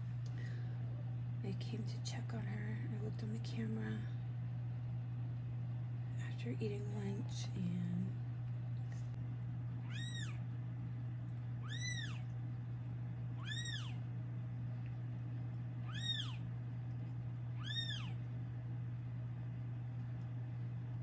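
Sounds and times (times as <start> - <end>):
low hum: 0.0 - 21.0
kitten mewing: 9.8 - 10.4, 11.6 - 12.3, 13.4 - 14.0, 15.8 - 16.4, 17.5 - 18.2.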